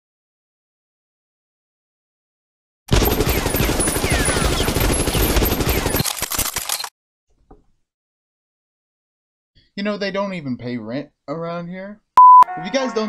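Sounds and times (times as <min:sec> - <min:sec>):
automatic gunfire: 0:02.9 - 0:06.7.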